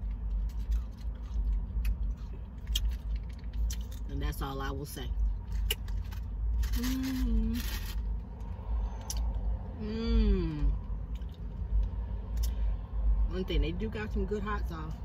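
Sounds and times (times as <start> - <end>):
low steady rumble: 0.0 - 15.0
woman humming: 9.8 - 10.8.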